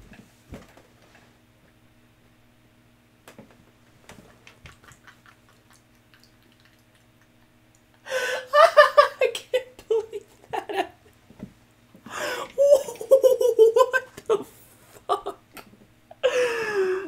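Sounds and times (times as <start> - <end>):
man laughing loudly: 4.3 - 5.9, 7.1 - 11.1, 12.2 - 15.4.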